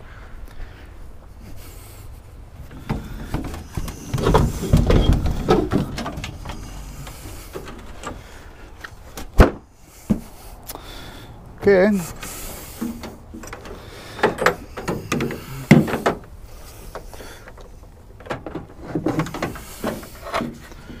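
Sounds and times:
wooden ramps scraping and rattling: 2.6s - 10.5s, 11.9s - 21.0s.

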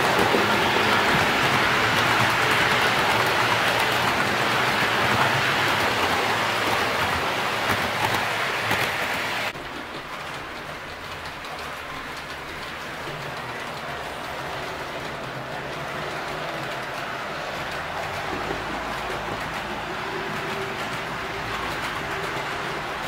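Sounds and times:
model train wheels rattling on track: 0.0s - 23.0s.

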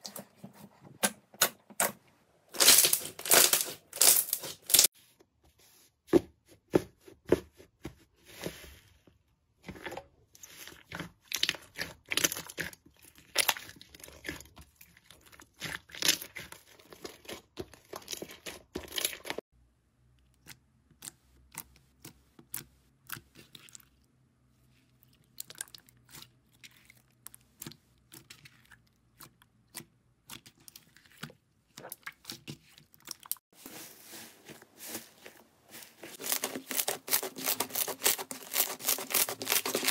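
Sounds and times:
hands squishing slime: 10.4s - 19.4s, 24.9s - 39.9s.

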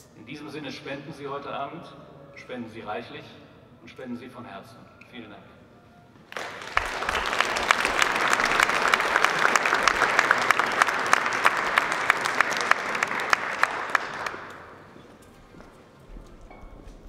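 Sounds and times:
audience applauding: 6.3s - 15.2s.

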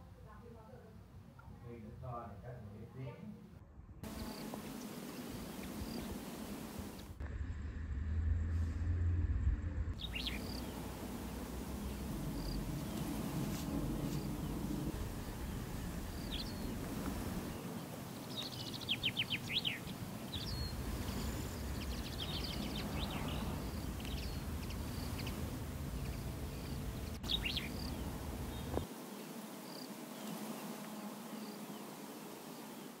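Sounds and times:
birds chirping: 4.0s - 7.7s, 10.0s - 33.0s
low background rumble: 5.8s - 17.8s, 18.5s - 28.9s.

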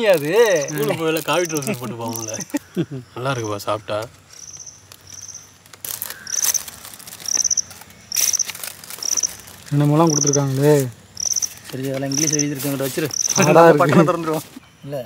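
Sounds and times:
paper rustling: 0.0s - 2.6s, 4.1s - 14.6s
cricket chirping: 0.0s - 15.0s.

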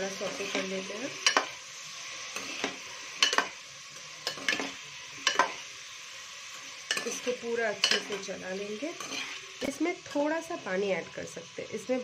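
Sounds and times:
vegetables sizzling in oil: 0.0s - 12.0s
metal spoon scraping pot: 8.9s - 9.5s.

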